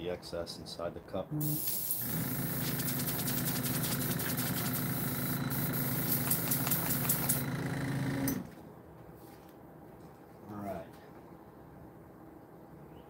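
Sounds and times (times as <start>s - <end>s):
airbrush compressor running: 1.5s - 8.5s.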